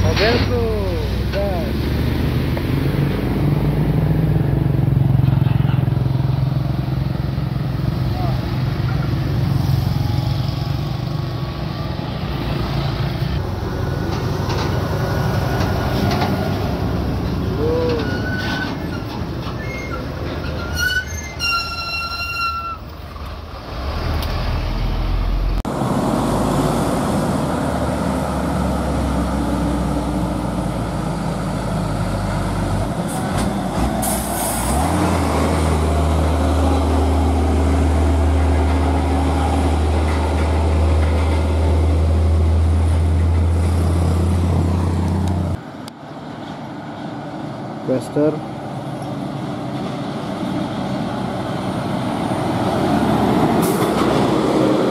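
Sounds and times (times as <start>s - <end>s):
diesel truck engine droning: 0.0s - 45.9s
road traffic: 0.0s - 54.9s
brief high squeal: 17.6s - 18.9s, 20.6s - 22.8s.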